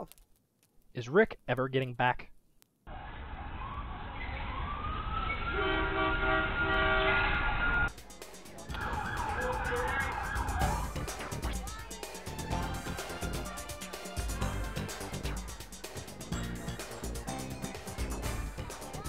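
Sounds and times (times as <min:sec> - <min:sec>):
siren wailing: 0:02.9 - 0:07.9, 0:08.7 - 0:11.0
music with a regular beat: 0:07.9 - 0:19.0.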